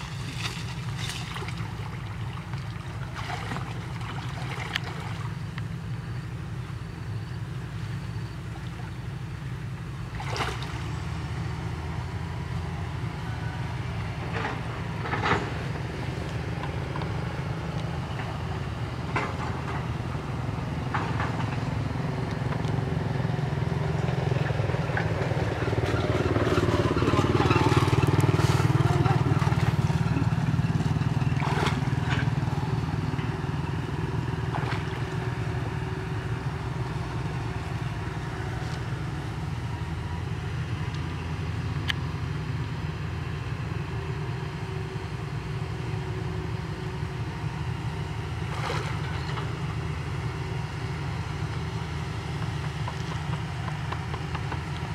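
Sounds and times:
vehicle engine passing: 0.0s - 5.5s, 20.4s - 41.8s.

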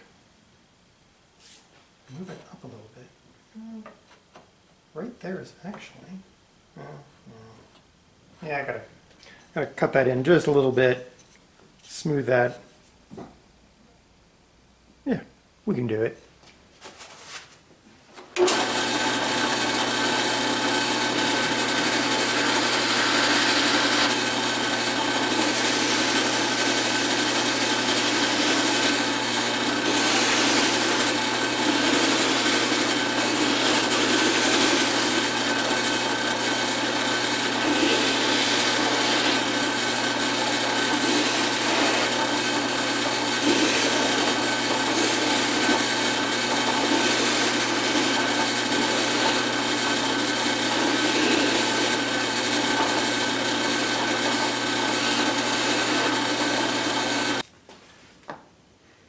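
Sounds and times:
drill press sanding wood: 18.4s - 57.4s.

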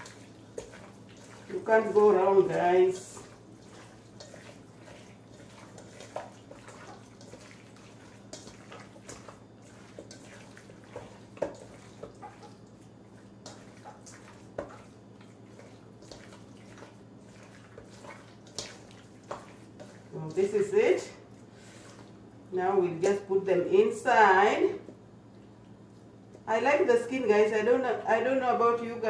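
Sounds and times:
wet squelching of meat by hand: 0.0s - 20.5s.

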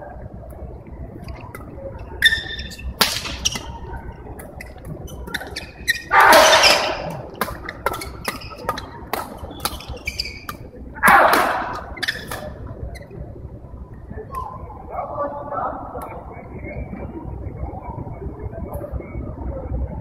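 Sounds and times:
shoes squeaking on hall floor: 2.0s - 10.7s, 11.5s - 13.2s
rackets striking shuttlecock: 2.2s - 3.8s, 4.4s - 12.5s.

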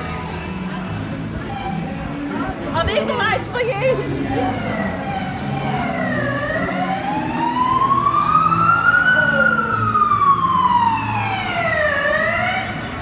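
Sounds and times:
emergency siren wailing: 4.2s - 13.0s.

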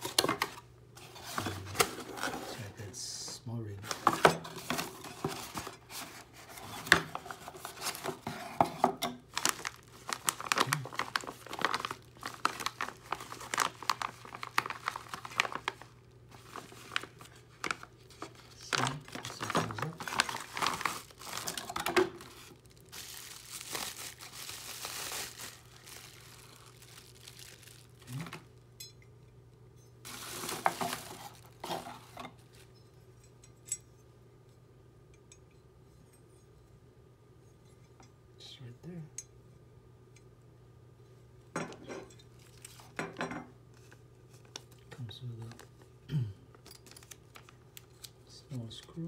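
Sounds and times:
plastic bag and bubble wrap crinkling: 0.0s - 8.6s, 9.2s - 28.6s, 30.0s - 32.7s, 43.8s - 45.9s, 46.6s - 49.0s.

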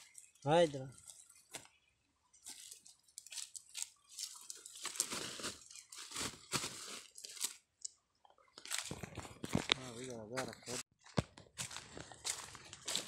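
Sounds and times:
dry leaves crunching underfoot: 2.4s - 7.6s, 8.6s - 10.8s, 11.6s - 13.0s
plastic sack crinkling: 3.2s - 7.4s.

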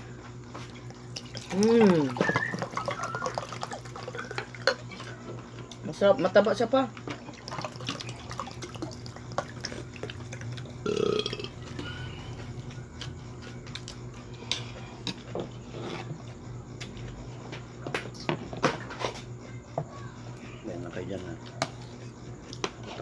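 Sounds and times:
burp: 10.8s - 11.6s.

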